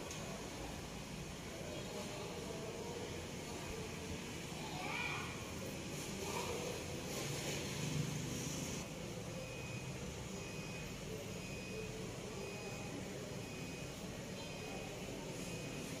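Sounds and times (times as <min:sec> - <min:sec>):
urban street ambience hum: 0:00.0 - 0:16.0
faint short high beeps: 0:09.3 - 0:16.0.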